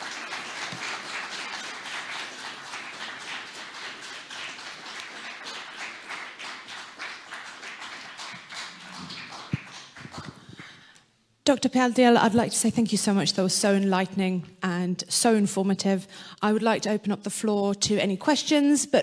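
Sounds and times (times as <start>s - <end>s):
audience applauding: 0.0s - 10.9s.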